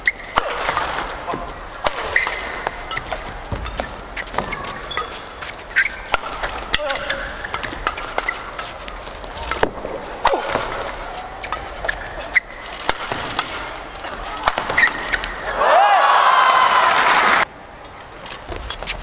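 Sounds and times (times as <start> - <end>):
shoes squeaking on court: 0.0 - 15.5, 17.9 - 19.0
racket hitting shuttlecock: 0.0 - 15.7
crowd cheering and applauding: 15.5 - 17.5.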